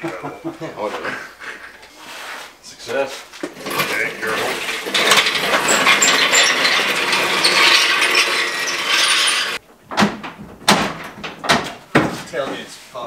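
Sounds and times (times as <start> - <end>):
engine hoist rattling on casters: 3.5 - 9.6.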